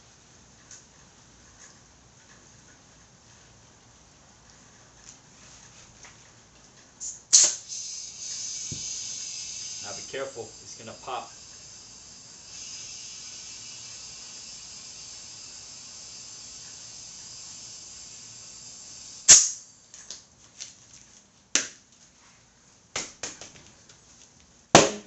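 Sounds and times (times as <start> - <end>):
compressed air hissing into tire: 7.0 - 19.8
tire bead popping onto rim: 19.3 - 19.6.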